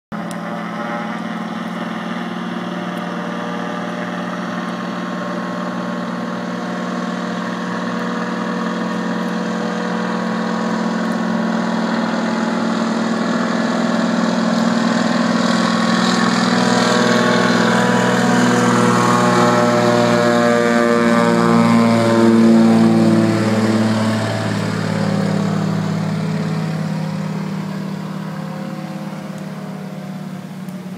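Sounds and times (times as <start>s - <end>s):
floatplane engine and propeller: 0.1s - 30.9s.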